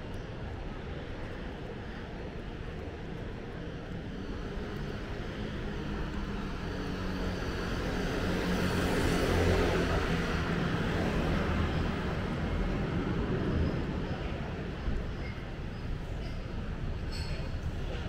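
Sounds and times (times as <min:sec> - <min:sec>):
city street traffic: 0:00.0 - 0:18.0.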